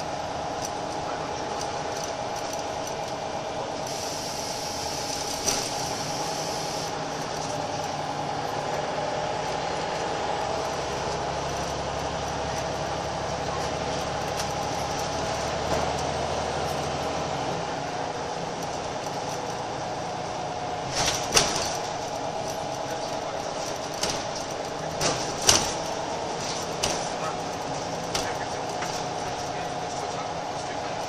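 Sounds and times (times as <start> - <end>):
bus engine droning: 0.0 - 31.0
body and fitting rattles: 10.5 - 17.4, 18.5 - 31.0.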